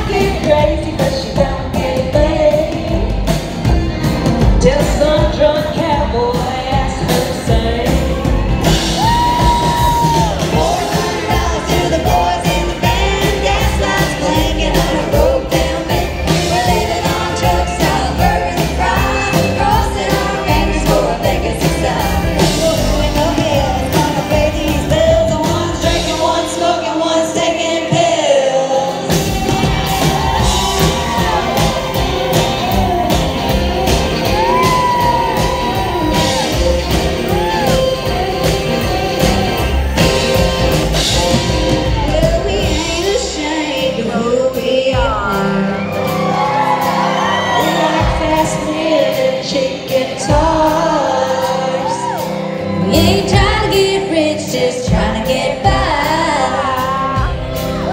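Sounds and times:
women singing together: 0.0 - 3.3, 9.4 - 29.1, 42.0 - 57.9
country band playing: 0.0 - 57.9.

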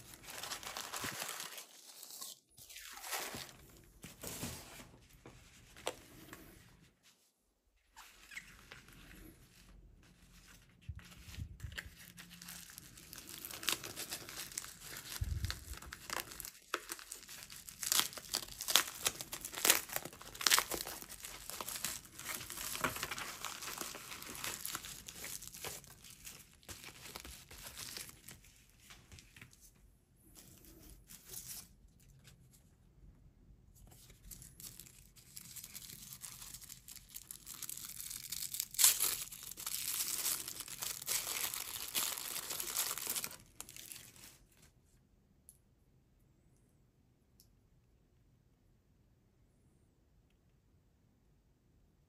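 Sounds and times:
packaging crinkling and rustling: 0.0 - 4.8, 10.4 - 29.6, 33.9 - 44.7.

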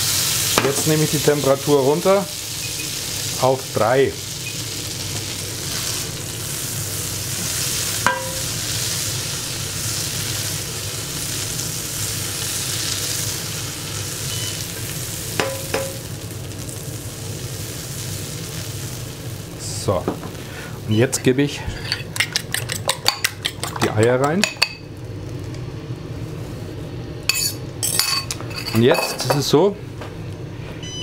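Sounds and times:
butter sizzling in a frying pan: 0.0 - 20.8.

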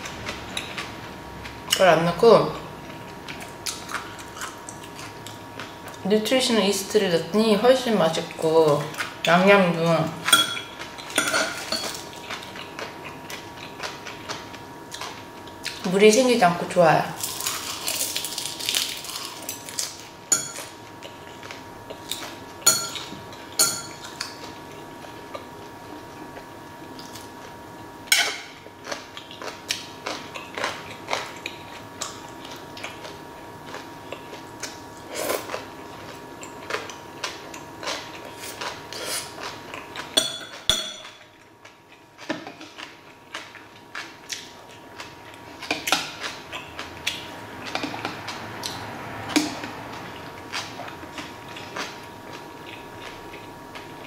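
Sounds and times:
chewing: 2.9 - 6.0, 11.8 - 15.8, 28.8 - 40.2, 41.1 - 54.0.

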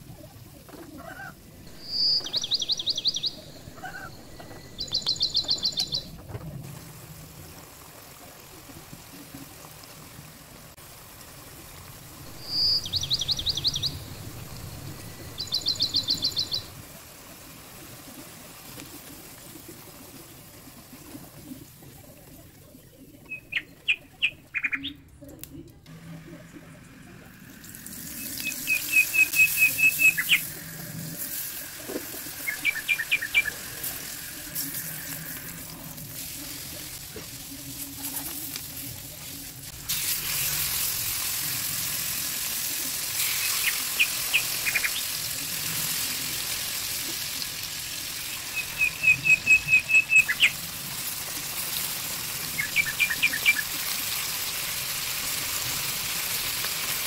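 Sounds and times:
bird chirping trills: 1.7 - 6.1, 12.3 - 16.7
chicken sizzling in a pan: 6.6 - 23.1, 25.9 - 57.0.

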